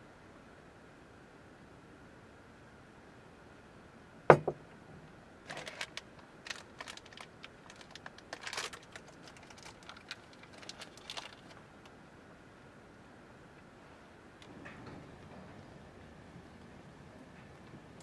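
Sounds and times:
glass set down on wooden table: 4.3 - 4.6
wrapper crinkling: 5.4 - 11.7.

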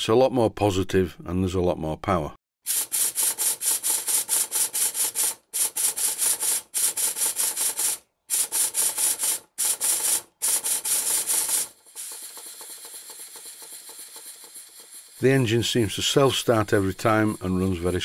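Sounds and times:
steam engine exhaust chuffing: 8.3 - 18.0.

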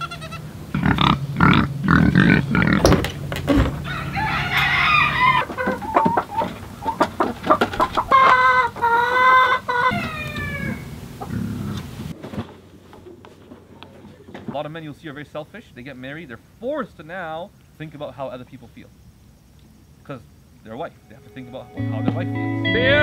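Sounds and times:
chickens clucking: 0.0 - 14.6
rooster crowing: 3.7 - 6.5, 7.8 - 11.0.

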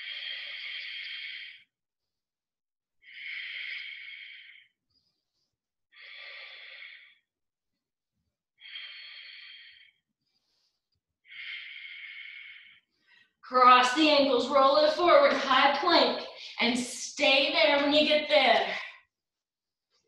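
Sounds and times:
woman breathing hard: 0.0 - 1.7, 6.0 - 7.2, 8.6 - 13.4.

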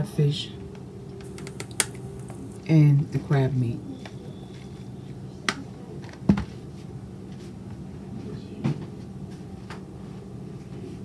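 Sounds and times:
steady low hum: 0.0 - 8.2.

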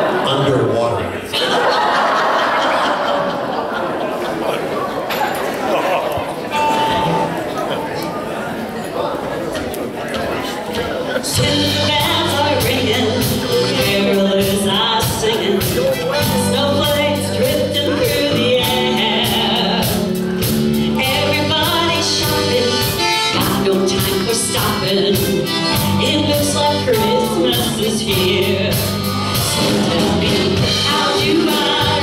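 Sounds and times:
keyboard: 5.1 - 32.0
country band playing: 6.1 - 8.3, 9.6 - 32.0
person singing: 11.2 - 32.0
drum beat: 11.4 - 26.1
accordion: 11.4 - 32.0.

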